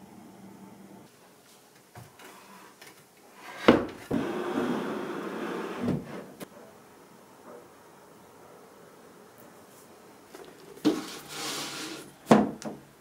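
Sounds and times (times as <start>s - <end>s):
sofa scraping across floor: 3.4s - 6.4s, 10.8s - 12.1s.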